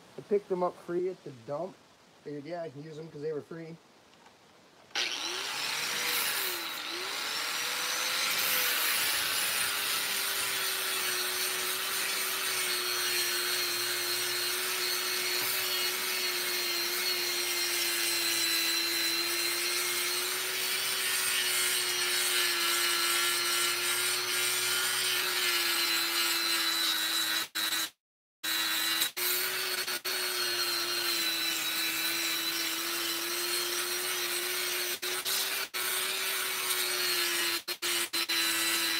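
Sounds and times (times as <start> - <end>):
angle grinder motor whine: 4.9 - 9.4.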